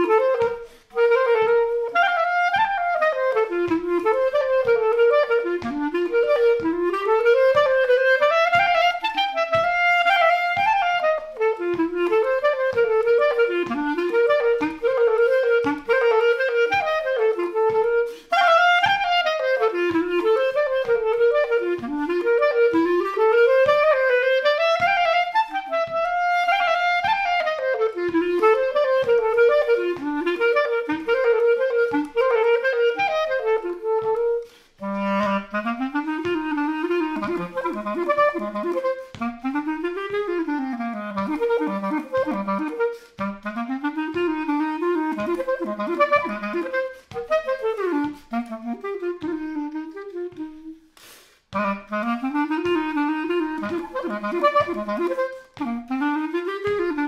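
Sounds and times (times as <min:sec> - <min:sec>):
solo clarinet waltz: 0:00.0 - 0:57.0.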